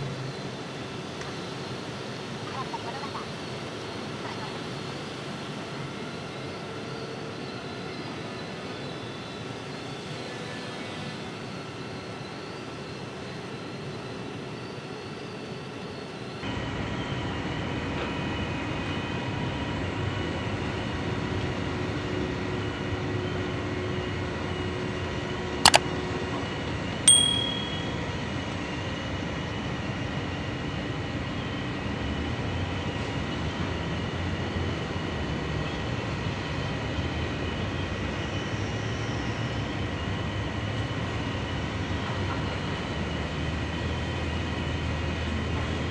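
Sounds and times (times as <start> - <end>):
bell ding: 27.1 - 28.1.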